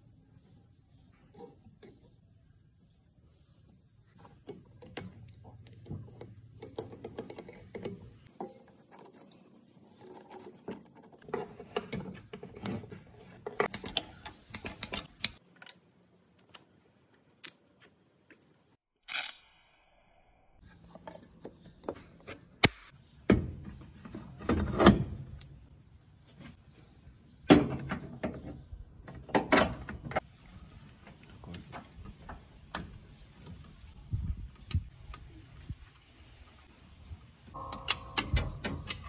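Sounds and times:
metal clicks taps and scrapes: 0:01.2 - 0:02.2, 0:03.7 - 0:18.4.

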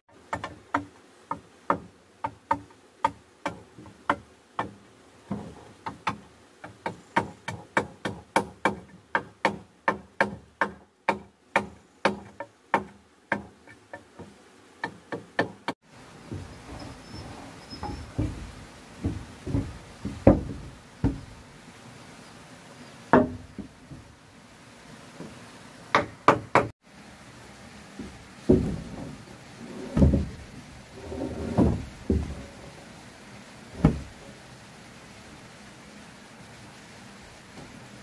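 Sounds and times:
wooden planks knocking and thudding: 0:00.1 - 0:21.5, 0:23.1 - 0:24.2, 0:25.2 - 0:26.7, 0:27.9 - 0:32.9, 0:33.7 - 0:34.4.

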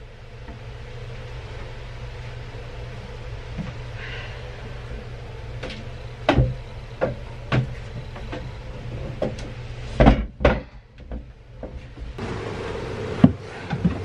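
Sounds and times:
steady low hum: 0:00.0 - 0:14.0
heavy cable thumping on wooden bench: 0:05.6 - 0:08.4, 0:09.2 - 0:11.8.

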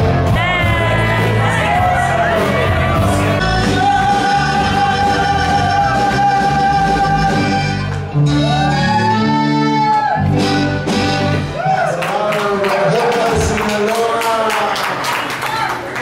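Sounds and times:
band playing: 0:00.0 - 0:13.9
singer holding long notes: 0:00.2 - 0:10.2.

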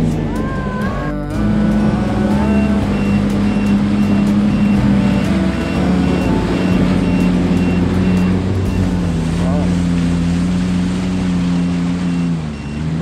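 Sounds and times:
jet ski engine running: 0:00.0 - 0:13.0
high electronic beep: 0:01.0 - 0:09.6, 0:12.0 - 0:12.9.

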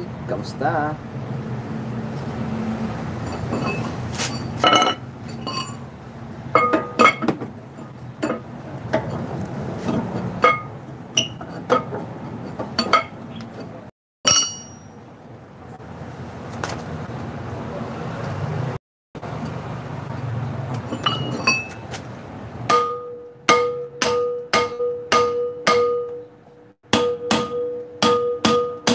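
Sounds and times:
metal clinking and tapping: 0:03.3 - 0:05.9, 0:06.5 - 0:09.2, 0:09.9 - 0:13.7, 0:14.3 - 0:14.9, 0:20.7 - 0:21.8.

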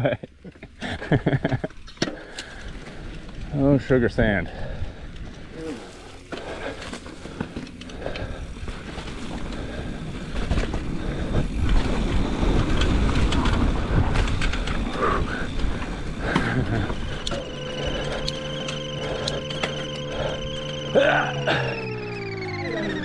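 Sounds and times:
bike tyres on sandy trail: 0:00.5 - 0:22.9
bike knocks and rattles: 0:05.3 - 0:17.2.

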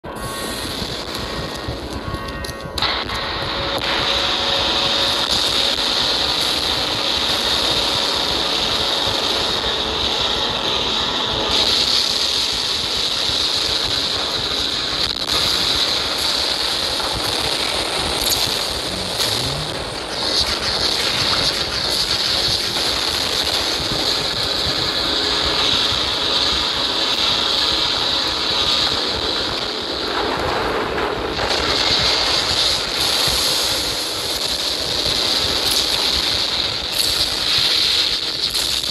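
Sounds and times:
dense battle roar: 0:18.7 - 0:20.2.

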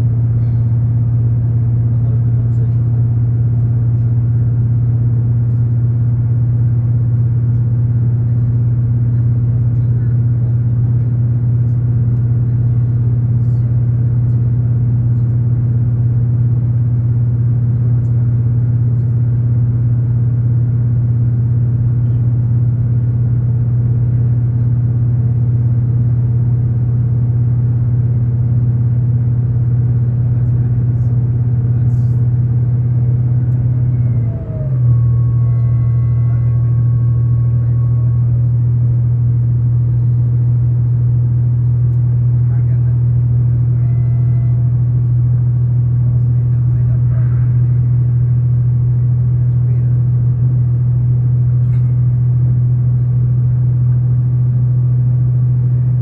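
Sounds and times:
diesel engine drone: 0:00.0 - 0:56.0
train running rumble: 0:00.0 - 0:56.0.

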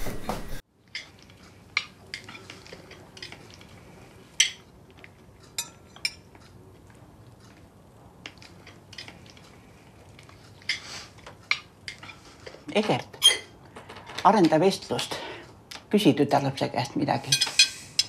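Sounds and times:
cutlery scraping and clinking on plates: 0:00.0 - 0:06.6, 0:10.3 - 0:14.2, 0:17.3 - 0:18.0.

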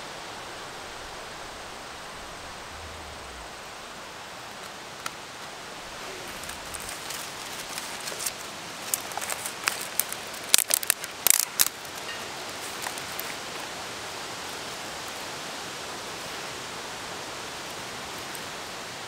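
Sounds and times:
campfire crackling and popping: 0:04.4 - 0:13.7.

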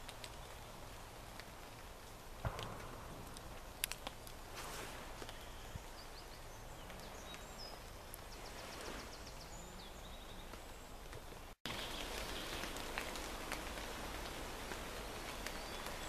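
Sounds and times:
faint raindrop ticks: 0:00.0 - 0:04.4, 0:10.5 - 0:16.0
light rain hiss: 0:00.0 - 0:16.0.

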